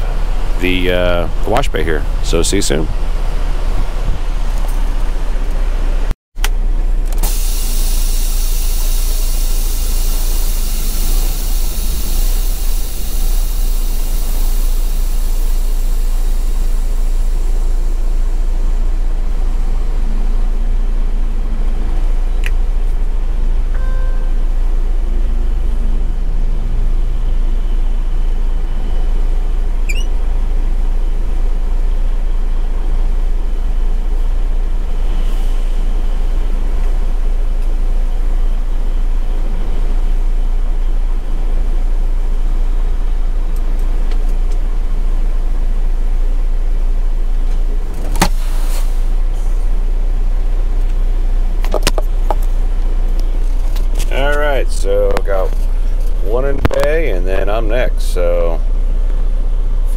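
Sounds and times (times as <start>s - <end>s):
truck diesel engine idling: 0.0s - 20.8s.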